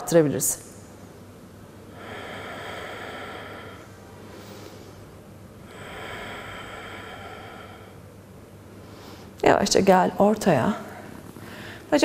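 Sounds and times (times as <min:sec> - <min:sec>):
woman breathing slowly: 0:01.8 - 0:09.4, 0:11.0 - 0:11.9.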